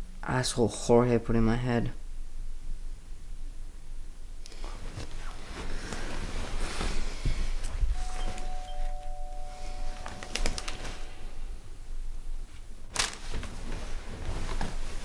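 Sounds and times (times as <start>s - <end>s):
two-tone doorbell chime: 8.0s - 11.6s.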